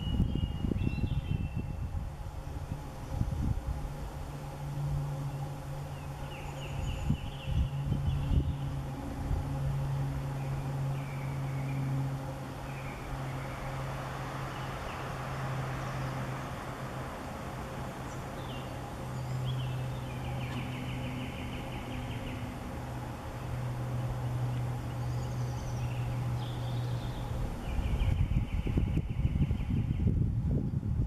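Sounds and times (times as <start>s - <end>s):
birds chirping: 0.0s - 2.0s, 2.7s - 30.2s
steady low hum: 0.0s - 31.0s.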